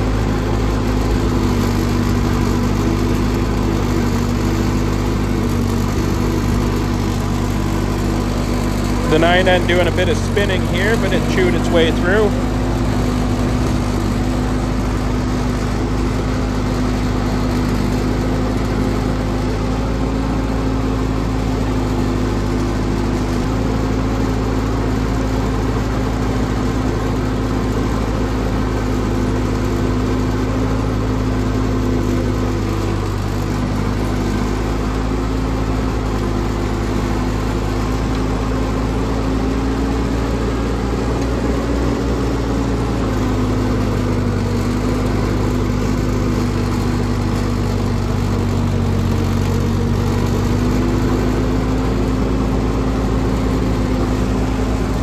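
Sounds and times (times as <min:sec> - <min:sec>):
tractor engines running: 0:00.0 - 0:55.0.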